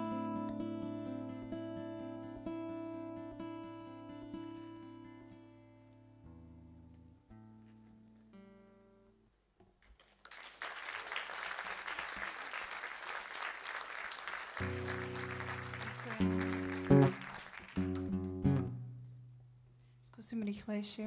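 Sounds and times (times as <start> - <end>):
acoustic guitar chords: 0.0 - 9.2, 14.6 - 19.8
audience applauding: 9.8 - 18.8.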